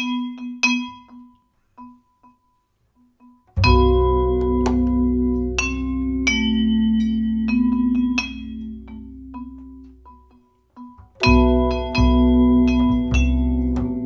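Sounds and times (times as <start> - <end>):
vibraphone chords: 3.2 - 14.0
plucked double bass: 3.5 - 14.0.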